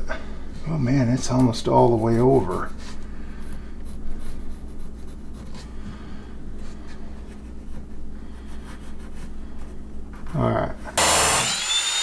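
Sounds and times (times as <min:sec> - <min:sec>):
steady low hum: 0:00.0 - 0:11.4
pencil scratching on wood: 0:03.8 - 0:05.7.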